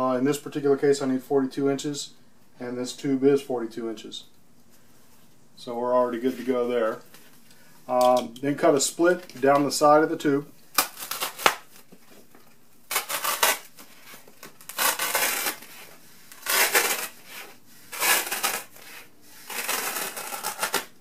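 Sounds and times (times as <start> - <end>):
knife slicing through foam: 14.6 - 20.9.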